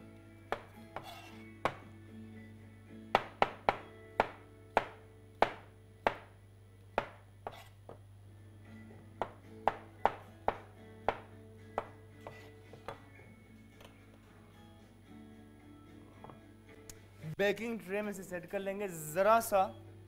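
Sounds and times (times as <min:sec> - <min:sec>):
knife chopping on cutting board: 0:00.5 - 0:01.8, 0:03.2 - 0:06.3, 0:07.0 - 0:08.0, 0:09.2 - 0:13.0.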